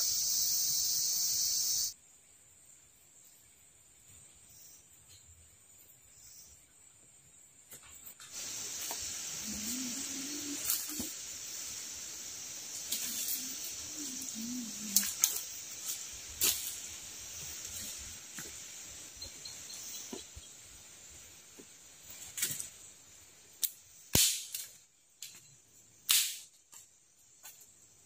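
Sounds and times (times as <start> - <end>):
forest insects droning: 0.0 - 28.0
low wavering calls: 9.1 - 15.5.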